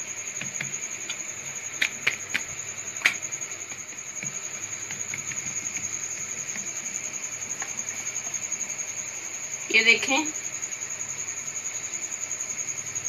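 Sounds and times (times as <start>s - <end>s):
hand patting dough: 0.3s - 8.2s.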